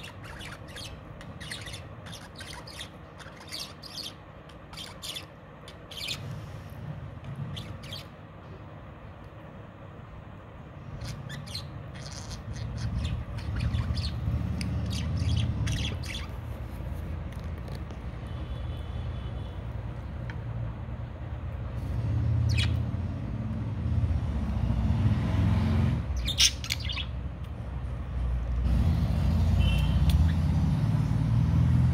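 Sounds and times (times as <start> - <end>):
budgerigars chirping and squawking: 0.0 - 6.6, 7.4 - 8.2, 10.8 - 16.6, 21.8 - 23.2, 26.0 - 27.2.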